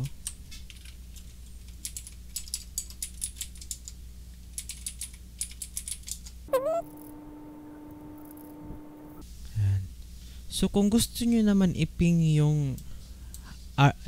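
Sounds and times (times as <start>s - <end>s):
faint low hum: 6.5s - 9.2s.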